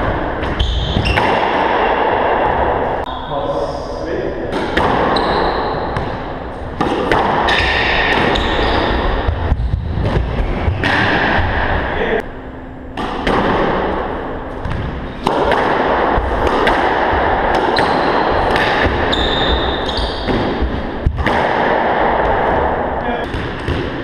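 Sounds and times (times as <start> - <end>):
squash ball striking walls: 0.0 - 3.0, 4.5 - 11.8, 12.9 - 24.0
steady background noise: 0.0 - 24.0.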